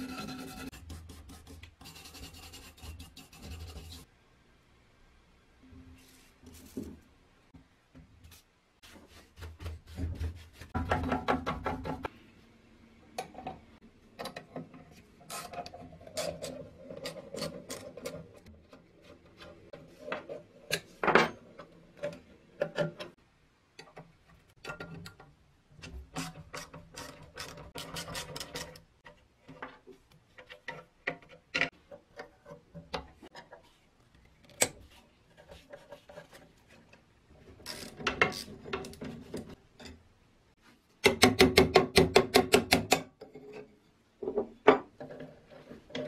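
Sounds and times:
tool scraping on metal: 0.0 - 4.1, 25.8 - 28.8.

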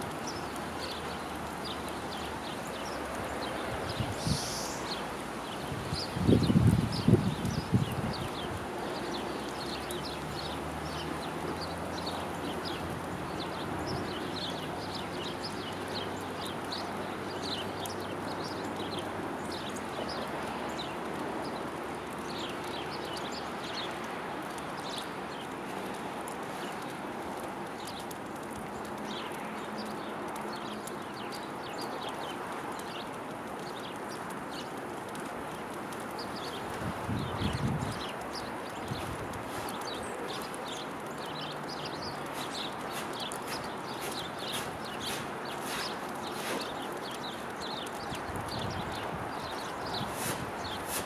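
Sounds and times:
background hiss: 0.0 - 19.9
songbirds chirping: 0.0 - 51.0.

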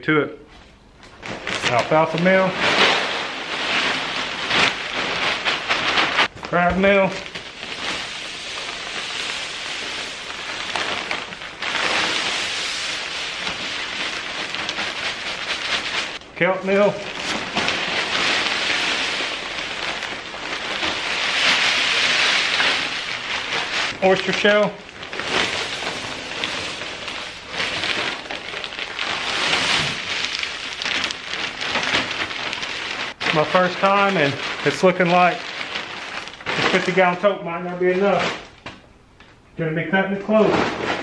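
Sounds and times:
powder pouring into plastic tote: 6.9 - 16.2, 16.8 - 36.9.

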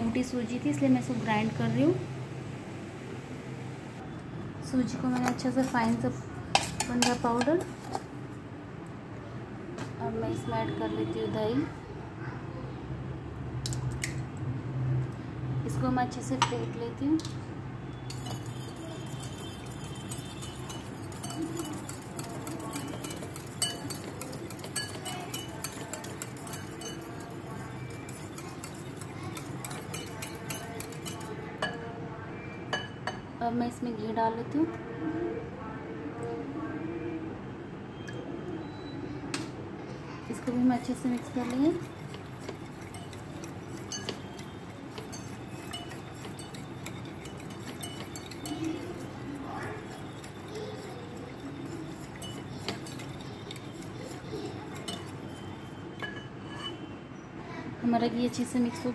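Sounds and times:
whisk clinking against bowl: 5.2 - 8.1, 18.0 - 31.9, 40.3 - 56.9.

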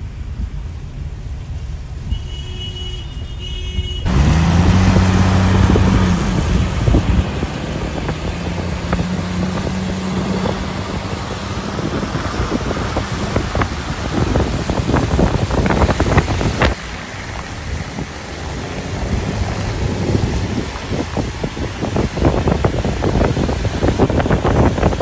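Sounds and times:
rain: 0.0 - 2.2, 4.1 - 25.0
road rumble inside car: 0.0 - 25.0
engine drone: 4.0 - 25.0
tyres hissing on wet road: 4.1 - 25.0.

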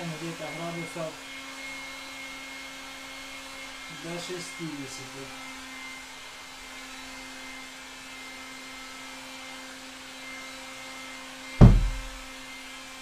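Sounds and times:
heat gun blowing air: 0.0 - 12.9
steady hum: 11.6 - 12.3.

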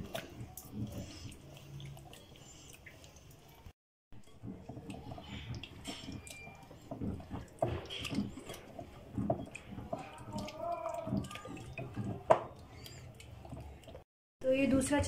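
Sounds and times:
wet squelching and dripping: 0.0 - 14.1.

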